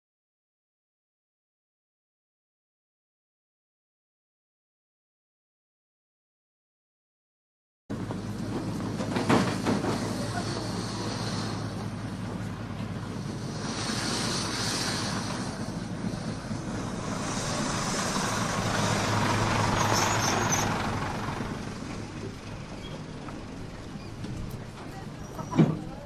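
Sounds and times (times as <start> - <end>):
street traffic noise: 7.9 - 26.0.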